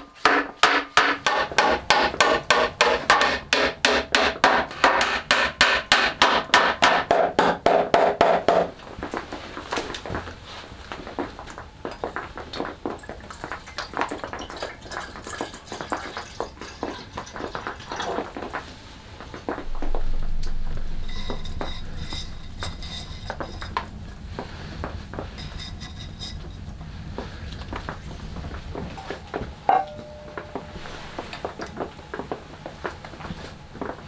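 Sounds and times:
sprigs rustling against kettle: 8.8s - 34.0s
low rumble: 19.6s - 22.8s
clinks and knocks on metal: 29.7s - 30.8s.

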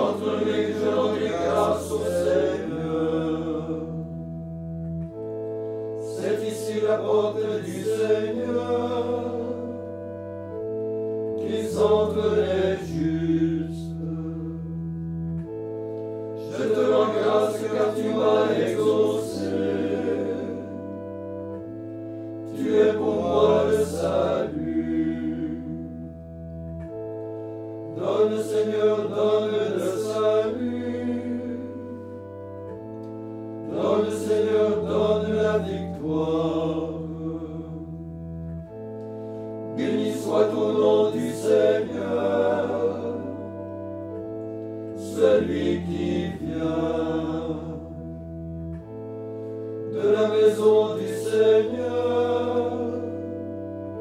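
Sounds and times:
male choir chanting: 0.0s - 4.0s, 6.0s - 9.9s, 11.4s - 14.5s, 16.4s - 20.8s, 22.5s - 25.8s, 27.9s - 32.0s, 33.7s - 37.9s, 39.7s - 43.5s, 45.0s - 47.8s, 49.9s - 53.3s
organ chords: 0.0s - 54.0s.

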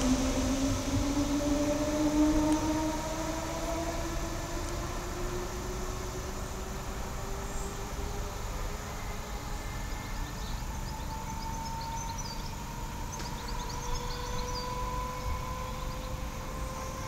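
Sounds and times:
train rumbling with whine: 0.0s - 17.0s
birds chirping: 8.8s - 17.0s.

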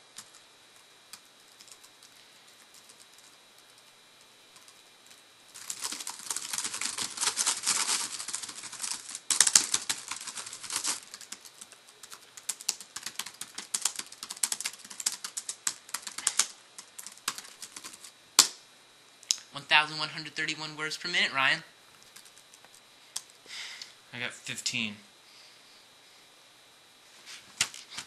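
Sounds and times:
laptop keyboard typing: 0.0s - 18.6s, 21.9s - 23.4s.

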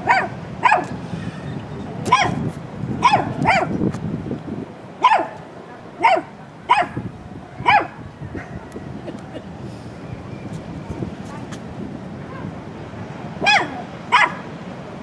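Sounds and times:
puppy yapping: 3.0s - 3.7s, 5.0s - 5.4s, 13.4s - 14.4s.

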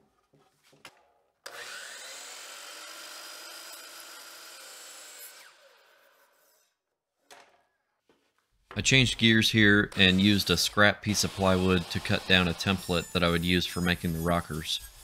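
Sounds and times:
miter saw cutting wood: 1.5s - 6.6s, 9.1s - 15.0s
saw blade winding down: 1.5s - 6.6s, 9.9s - 15.0s.

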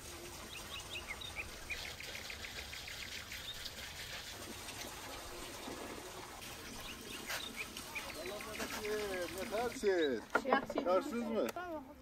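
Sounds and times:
small birds chirping: 0.4s - 3.7s, 6.4s - 10.4s.

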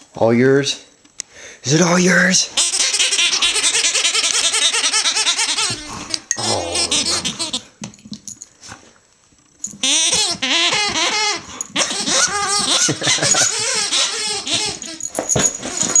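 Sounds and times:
rubber squeaky toy squeaking: 2.6s - 5.9s, 6.8s - 7.6s, 9.8s - 15.1s.

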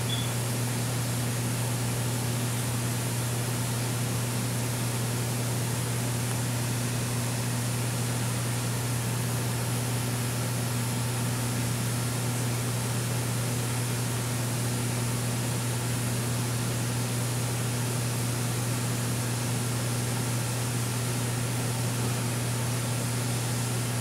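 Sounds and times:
low electrical hum: 0.0s - 10.4s.

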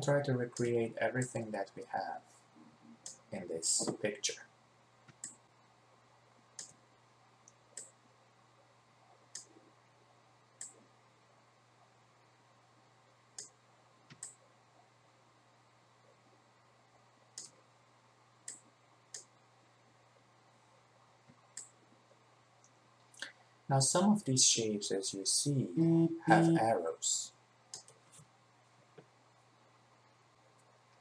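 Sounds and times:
faint low hum: 0.0s - 31.0s
computer mouse clicking: 5.1s - 5.4s, 6.6s - 6.8s, 7.4s - 8.0s, 9.3s - 9.6s, 10.6s - 10.8s, 13.4s - 14.4s, 17.4s - 17.6s, 18.4s - 19.3s, 21.3s - 21.8s, 27.7s - 28.3s.

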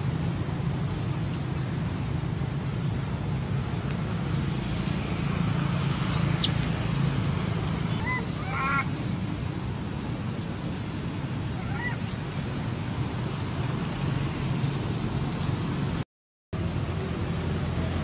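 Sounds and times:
baby monkey screaming: 6.1s - 6.6s, 7.9s - 8.9s, 11.6s - 12.1s
higher monkey calls: 6.1s - 6.6s, 7.9s - 8.9s, 11.5s - 12.2s.

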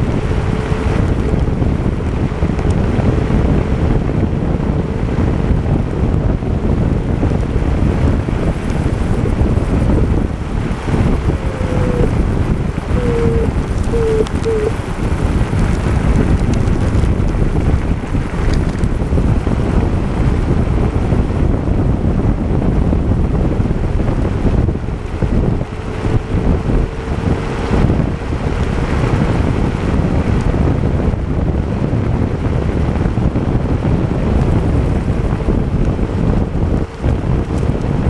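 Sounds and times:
road rumble: 0.0s - 38.0s
wind buffeting microphone: 0.0s - 38.0s
faint whine: 8.5s - 15.0s.

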